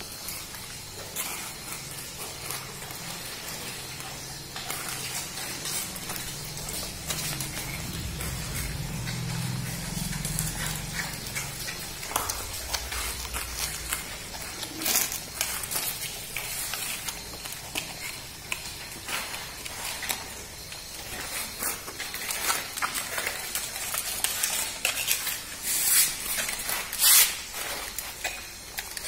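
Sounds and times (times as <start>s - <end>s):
puppies chewing: 0.0s - 29.0s
low hum: 5.4s - 16.5s.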